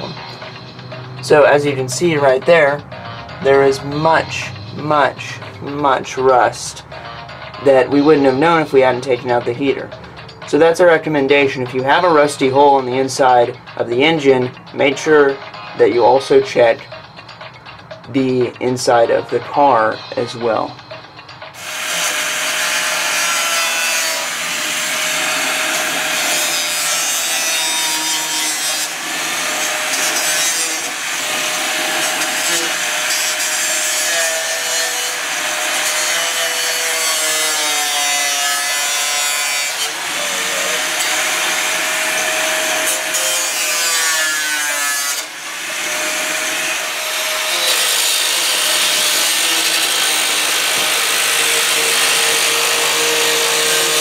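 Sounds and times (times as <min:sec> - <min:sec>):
angle grinder cutting sheet steel: 0:21.6 - 0:54.0.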